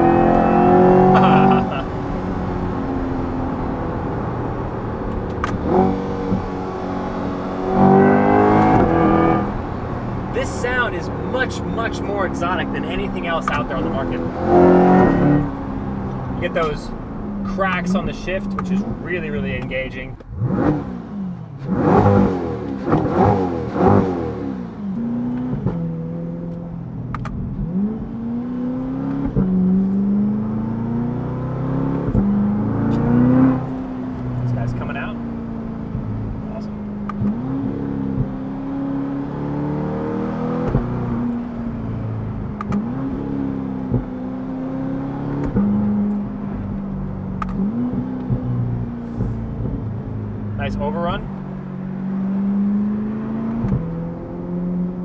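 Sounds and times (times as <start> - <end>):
engine revving hard: 0.0 - 1.8, 5.6 - 9.6, 12.2 - 15.6, 20.3 - 25.8
exhaust crack: 0.0 - 28.2, 29.0 - 39.5, 40.1 - 55.0
car engine running: 0.0 - 55.0
exhaust crack at gear shifts: 7.6 - 21.0, 40.6 - 44.3, 45.3 - 51.8.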